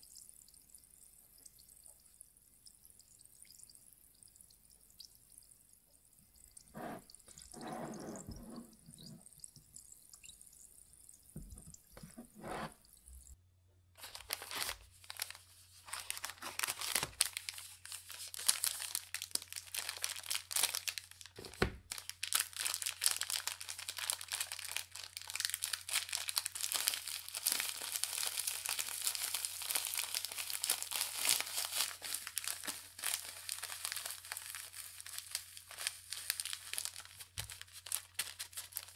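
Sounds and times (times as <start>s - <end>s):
biscuits crunching in paper wrapper: 14.0s - 38.9s.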